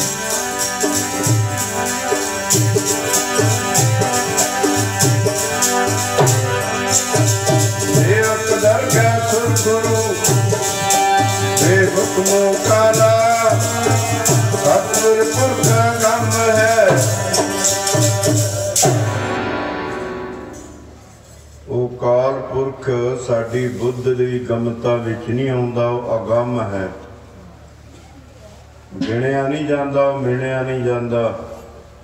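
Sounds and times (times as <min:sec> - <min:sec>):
jingling percussion: 0:00.0 - 0:19.3
barrel drum beat: 0:00.0 - 0:19.4
string instruments: 0:00.0 - 0:21.5.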